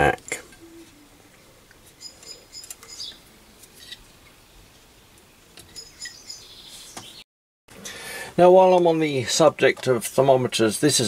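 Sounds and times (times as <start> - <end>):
faint high chirping: 2.0 - 4.0, 5.7 - 7.2.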